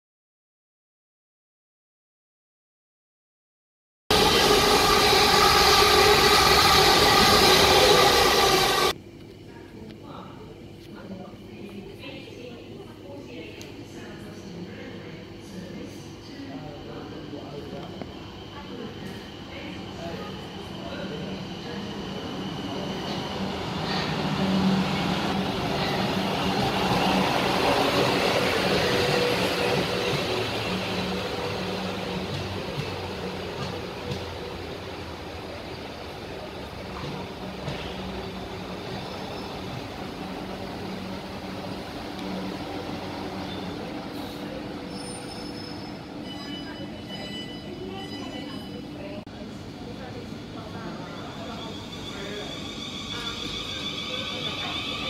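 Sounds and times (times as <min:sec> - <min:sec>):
train motor whine: 0:04.1 - 0:08.9
train wheel rolling rush: 0:04.1 - 0:09.0, 0:18.7 - 0:45.9.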